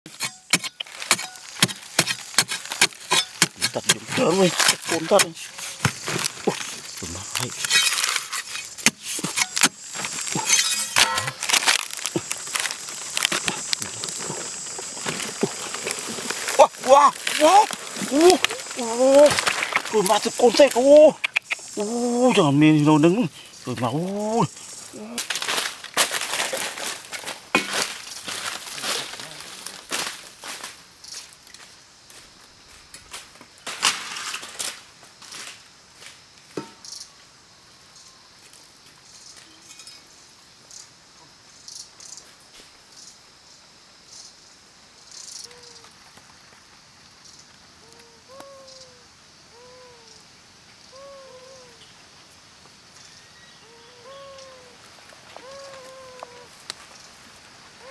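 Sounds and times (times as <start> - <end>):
dry earth crunching and crumbling: 0.1 - 23.1, 23.7 - 30.8.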